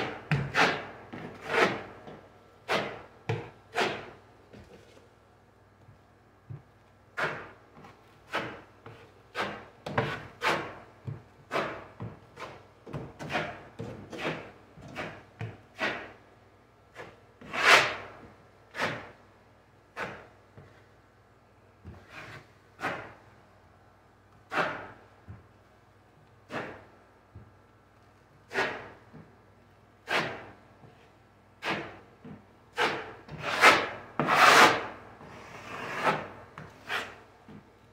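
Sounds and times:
taping knife scraping a wall: 0.0s - 4.2s, 7.2s - 10.8s, 11.5s - 16.2s, 16.9s - 19.2s, 20.0s - 20.4s, 21.9s - 23.2s, 24.5s - 25.0s, 26.5s - 26.9s, 28.5s - 29.2s, 30.0s - 32.1s, 32.7s - 37.3s.

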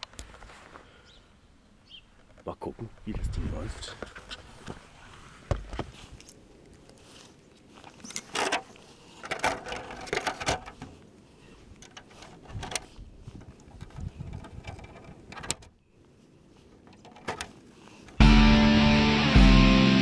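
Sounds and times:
plastic clicks and knocks: 13.4s - 15.7s.

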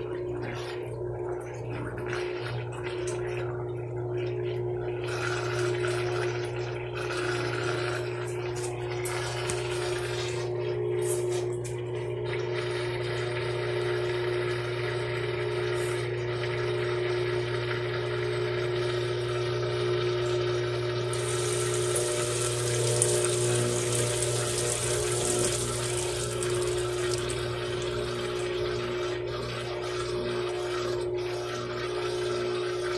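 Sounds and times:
washing machine motor hum: 0.0s - 32.9s
water hissing: 21.2s - 28.3s
water rushing: 21.2s - 28.4s.

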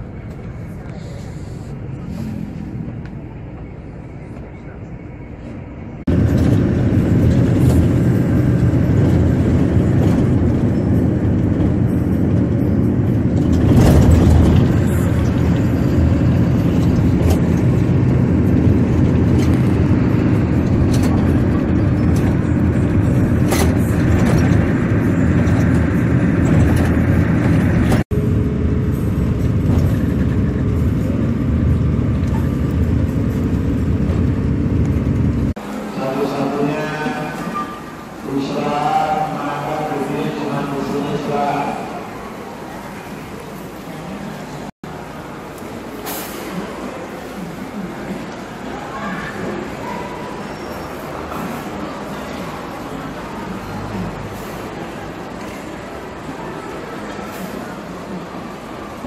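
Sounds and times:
bus engine hum: 0.0s - 59.0s
tyre and road noise: 0.0s - 59.0s.

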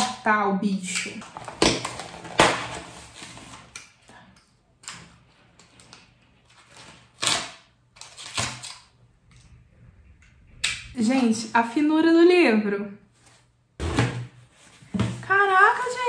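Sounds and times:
cardboard and packaging rustling: 1.2s - 3.8s.

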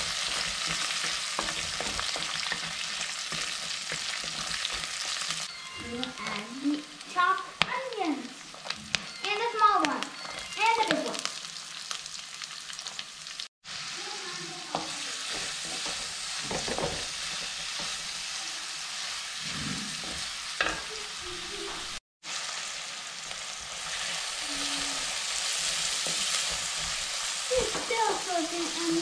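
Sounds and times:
wooden spatula scraping a pot: 0.0s - 6.5s, 14.8s - 18.2s, 19.2s - 21.0s
onions sizzling in oil: 0.0s - 29.0s.

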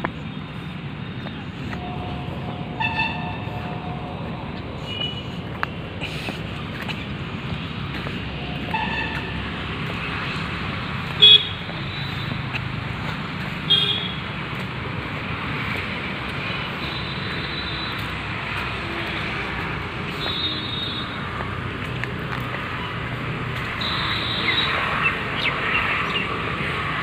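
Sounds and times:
road traffic noise: 0.0s - 27.0s
vehicle horn toots: 1.7s - 5.4s, 8.4s - 9.4s, 11.2s - 12.3s, 13.7s - 14.2s, 20.1s - 21.2s, 23.8s - 24.8s.

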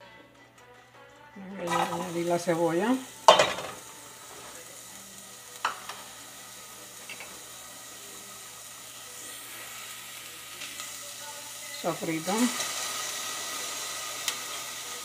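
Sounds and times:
onion sizzling in hot oil: 1.6s - 15.0s.

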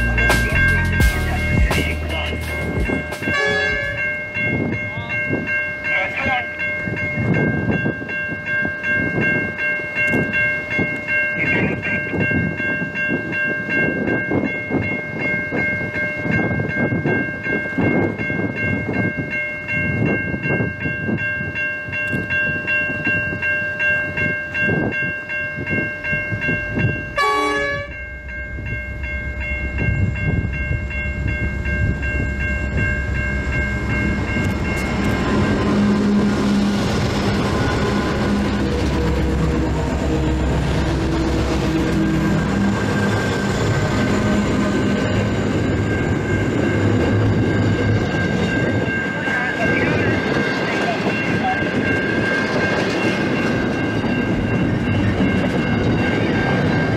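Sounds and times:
diesel locomotive rumble: 0.0s - 8.2s, 26.0s - 56.9s
level crossing bells ringing: 0.0s - 56.9s
train horn: 3.3s - 4.1s, 27.2s - 28.0s.

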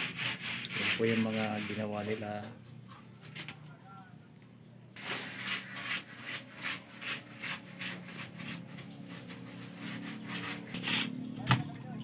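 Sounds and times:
hand scraping concrete: 0.0s - 2.6s, 5.0s - 11.6s.

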